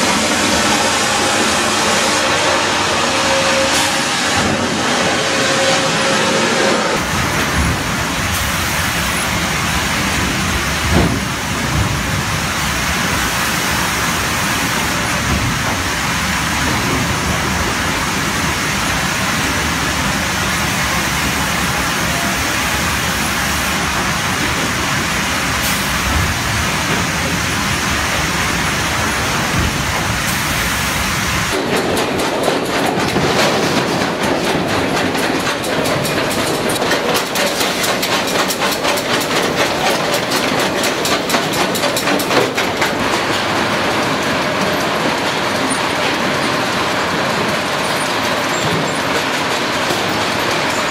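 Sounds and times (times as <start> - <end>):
log-handling machinery din: 0.0 - 22.6
machinery knock: 10.2 - 12.3, 31.5 - 50.7.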